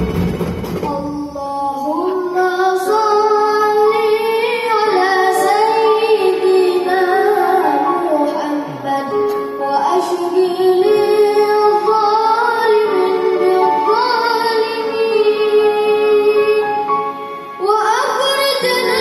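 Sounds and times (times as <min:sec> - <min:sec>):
orchestra playing: 0:00.0 - 0:02.1, 0:11.0 - 0:19.0
child singing: 0:00.8 - 0:16.6, 0:17.6 - 0:19.0.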